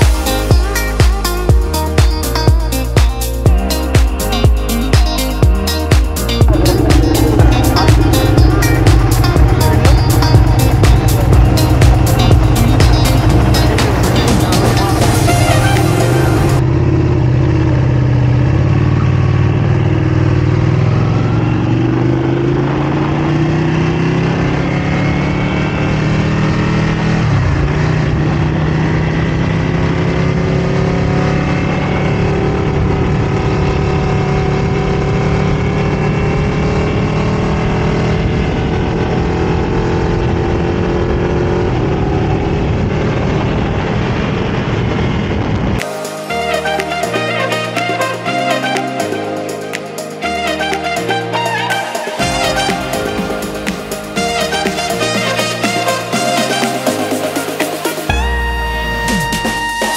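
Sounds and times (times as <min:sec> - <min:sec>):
motorcycle engine accelerating: 0:05.7 - 0:45.8.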